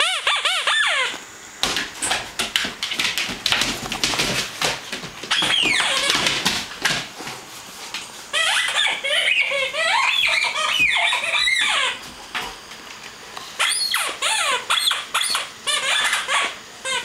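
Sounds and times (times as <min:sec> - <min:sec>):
squeaky toy squeaking: 0:00.0 - 0:01.1, 0:08.3 - 0:12.0, 0:13.6 - 0:17.0.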